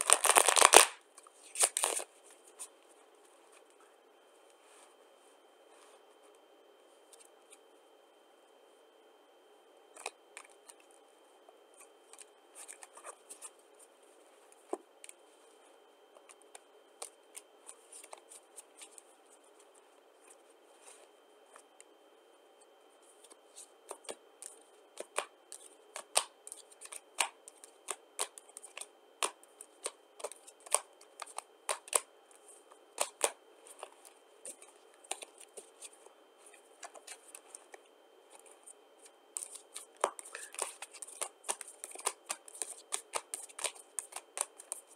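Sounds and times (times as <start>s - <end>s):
playing cards shuffling: 0.1s - 0.9s, 1.5s - 2.1s, 39.4s - 44.8s
cards snapping and slapping down: 0.2s - 1.0s.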